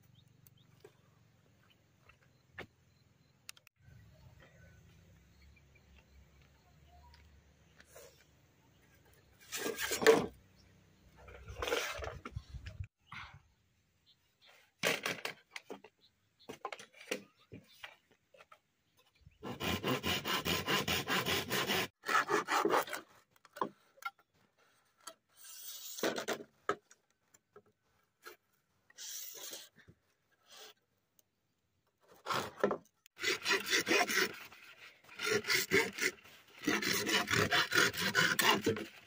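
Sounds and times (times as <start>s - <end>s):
hand saw cutting bamboo: 19.4s - 23.2s, 33.2s - 39.0s.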